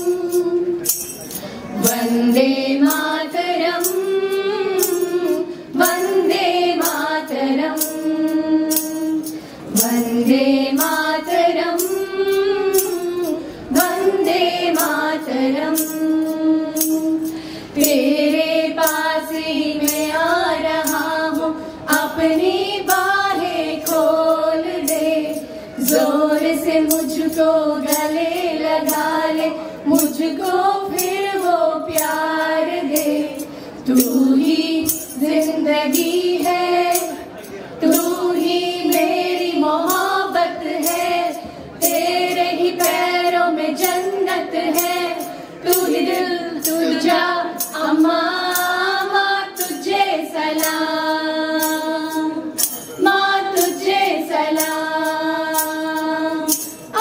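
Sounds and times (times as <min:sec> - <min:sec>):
light percussion strikes: 0:00.0 - 0:57.0
women singing in unison: 0:00.0 - 0:57.0.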